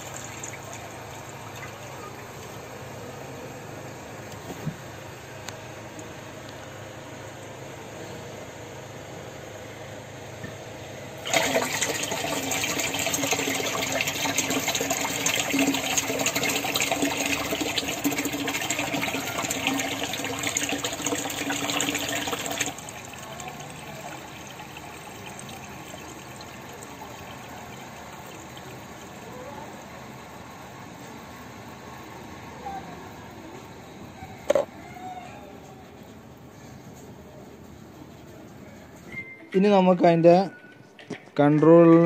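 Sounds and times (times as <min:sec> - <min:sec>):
water gushing into plastic tank: 0:00.0 - 0:02.6, 0:11.2 - 0:30.4.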